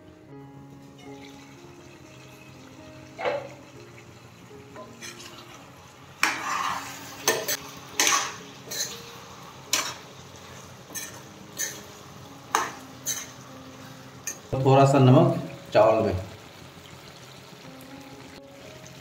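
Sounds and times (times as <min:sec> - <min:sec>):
low frying sizzle: 0:00.0 - 0:19.0
spoon scraping a metal pan: 0:04.8 - 0:05.6, 0:06.2 - 0:09.1, 0:09.7 - 0:13.4.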